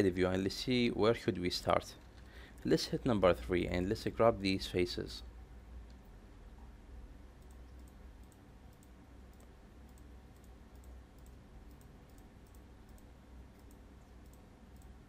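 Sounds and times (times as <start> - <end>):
low steady hum: 0.0 - 15.0
computer mouse clicks: 7.4 - 15.0.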